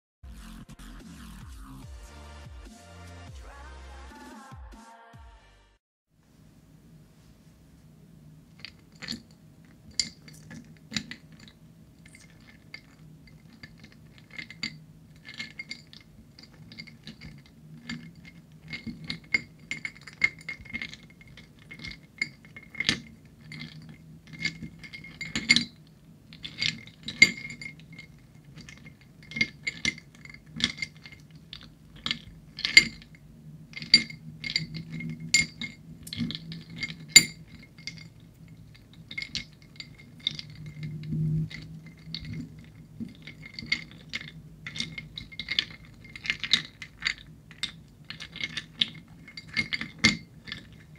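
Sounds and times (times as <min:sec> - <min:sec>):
ice cubes clinking on a plate: 0:12.1 - 0:50.9.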